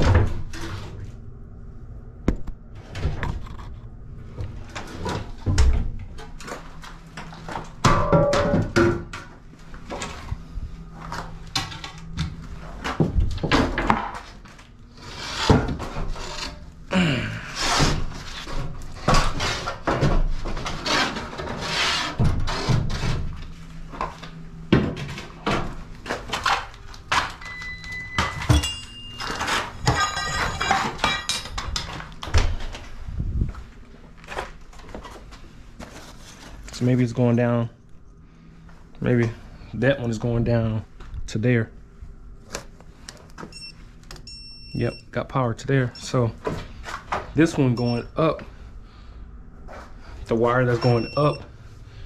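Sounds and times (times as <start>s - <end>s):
tools knocking and scraping: 28.2s - 32.0s
steady high tone: 47.7s - 48.2s, 50.7s - 51.5s.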